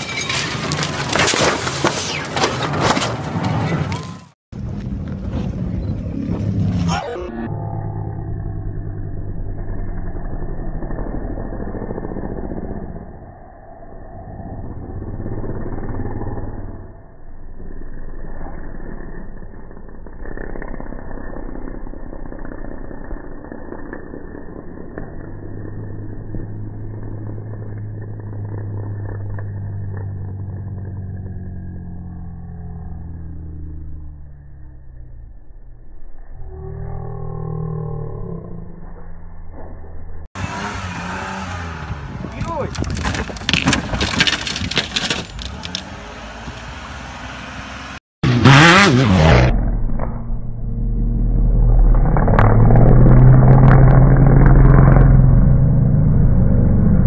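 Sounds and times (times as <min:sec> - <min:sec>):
truck crunching and rattling: 0:00.0 - 0:03.9, 0:42.6 - 0:46.4
buggy engine droning: 0:00.0 - 0:57.0
rough rumbling noise: 0:00.0 - 0:57.0.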